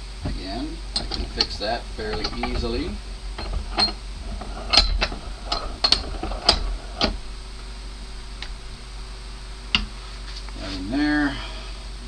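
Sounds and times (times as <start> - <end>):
hand tool clicking on metal fittings: 1.0 - 7.2.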